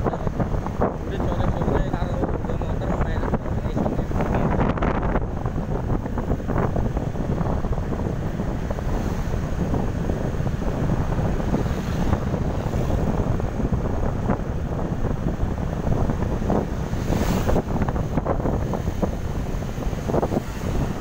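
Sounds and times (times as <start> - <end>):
road noise: 0.0 - 21.0
wind buffeting microphone: 0.0 - 21.0
motorcycle engine: 4.4 - 21.0.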